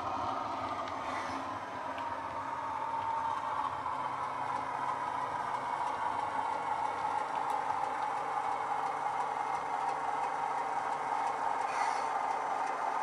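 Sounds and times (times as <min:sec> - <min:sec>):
model diesel engine sound: 0:00.0 - 0:13.0.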